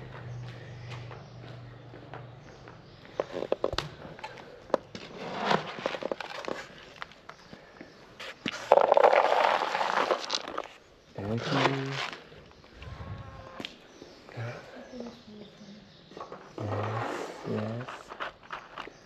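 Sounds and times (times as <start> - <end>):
kibble scooped in plastic bucket: 8.5 - 10.7
kibble pouring rattle: 8.7 - 10.7.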